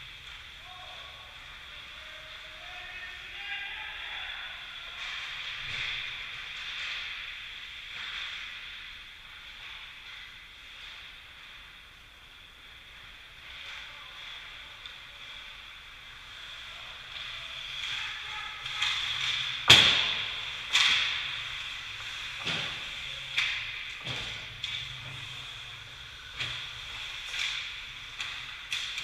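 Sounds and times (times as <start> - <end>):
sharp cracks against the boards: 19.6 - 21.2.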